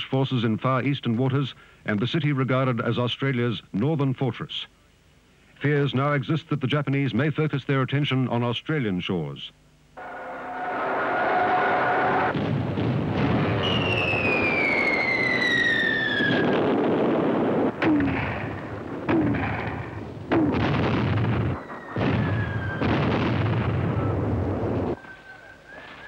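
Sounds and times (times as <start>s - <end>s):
artillery blasts: 10.0s - 25.0s
falling shell whistle: 13.6s - 16.6s, 21.4s - 23.1s, 24.9s - 26.0s
steady low rumble: 16.1s - 25.0s.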